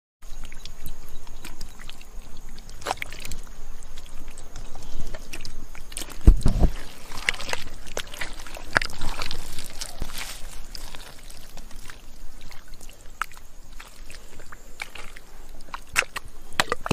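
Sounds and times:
hands splashing through mud: 1.4s - 16.9s
heavy thump: 6.2s - 6.8s.

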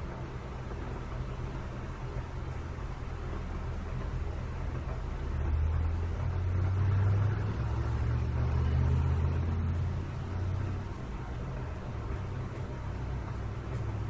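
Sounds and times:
steady low hum: 0.0s - 14.0s
deep low rumble: 3.2s - 14.0s.

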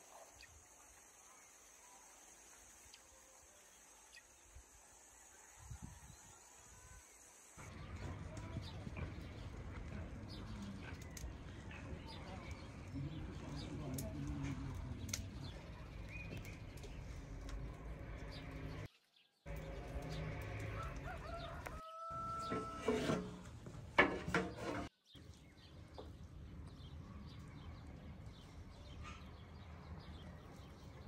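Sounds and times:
small birds chirping: 5.6s - 22.6s.

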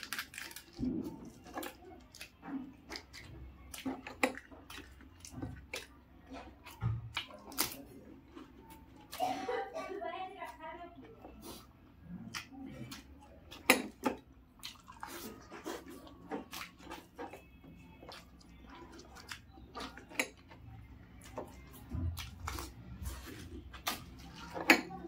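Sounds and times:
crisp shells cracking: 0.0s - 0.8s
wet squishes: 0.0s - 9.4s, 11.4s - 25.0s.

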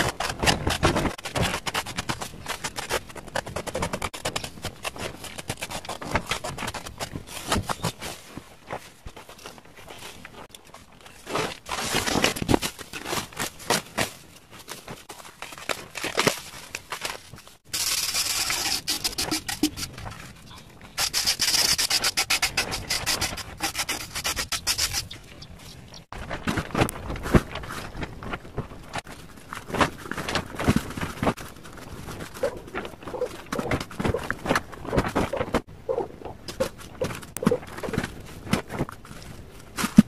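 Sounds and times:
cement pot scraping against sand: 17.7s - 20.4s, 21.0s - 25.2s.

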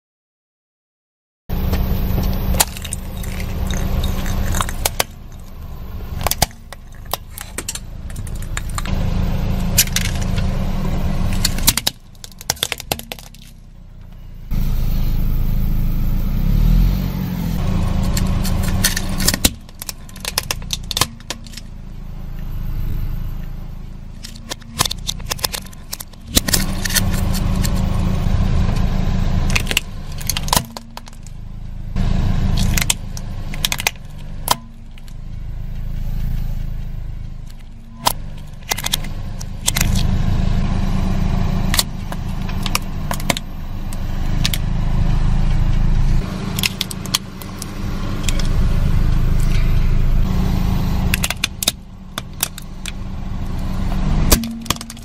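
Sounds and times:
car engine rumble: 1.5s - 55.0s
plastic cracking under car tyre: 1.8s - 8.9s, 11.3s - 13.6s, 18.0s - 21.7s, 24.2s - 27.9s, 29.5s - 31.3s, 32.6s - 35.2s, 41.7s - 44.6s, 46.6s - 48.6s, 51.1s - 53.0s, 54.3s - 55.0s.

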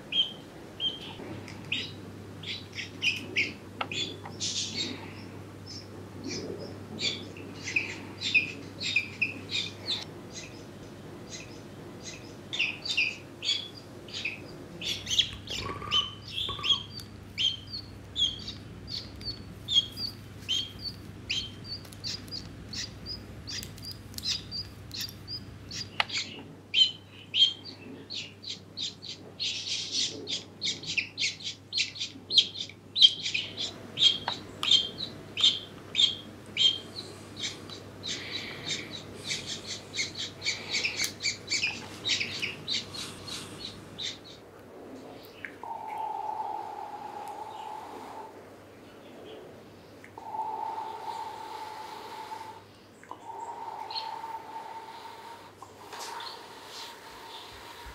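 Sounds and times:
duckling peeping: 11.3s - 44.4s.

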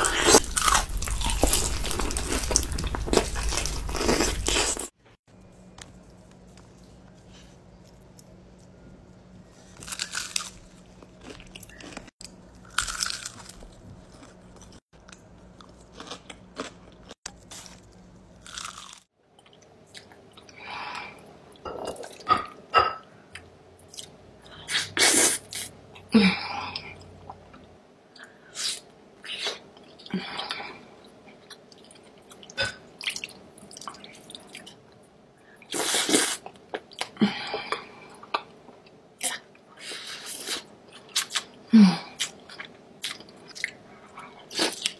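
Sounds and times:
chewing and mouth sounds: 9.8s - 17.7s.

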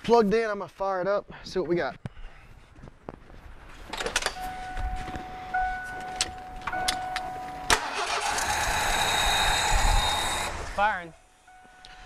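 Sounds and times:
engine running: 6.6s - 10.8s
starter motor cranking: 7.7s - 10.5s.

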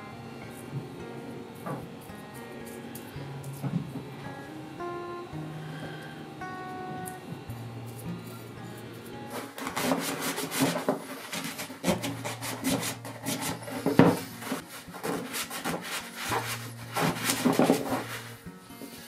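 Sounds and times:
brush scrubbing metal: 9.3s - 19.0s
paper towel rubbing metal: 9.3s - 19.0s.

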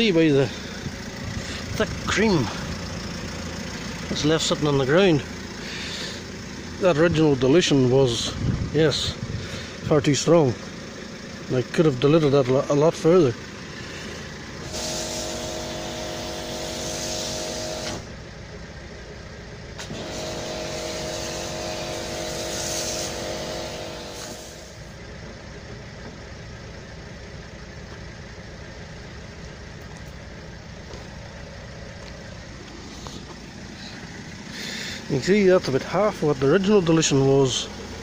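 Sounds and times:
low rumble: 0.0s - 4.6s, 5.2s - 11.8s
pressure washer motor hum: 14.6s - 18.1s, 19.8s - 24.8s
foam spraying hiss: 20.2s - 24.7s.

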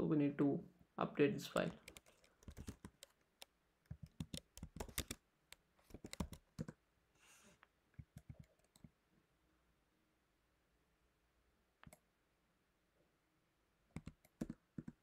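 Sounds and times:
keyboard typing: 1.6s - 6.8s, 8.0s - 9.0s, 13.9s - 15.0s.

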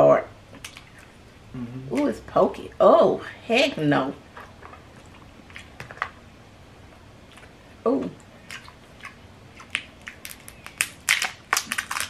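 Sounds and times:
person saying ooh: 1.6s - 2.0s
crab shell cracking: 8.5s - 12.0s.

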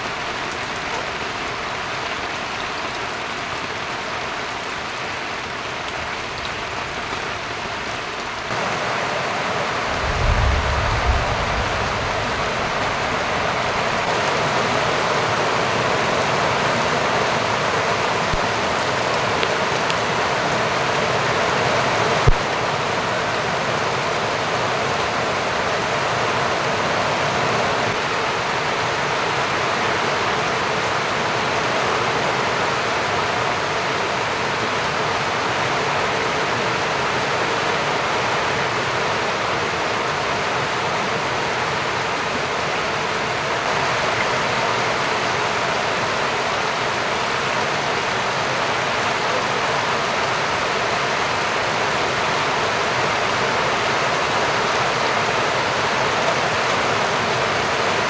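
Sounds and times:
heavy rain hissing: 0.0s - 58.0s
low thumps: 9.8s - 14.1s.

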